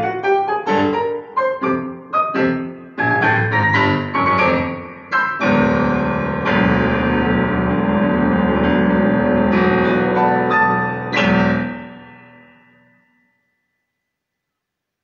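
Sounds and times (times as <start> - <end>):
digital piano chords: 0.0 - 13.1.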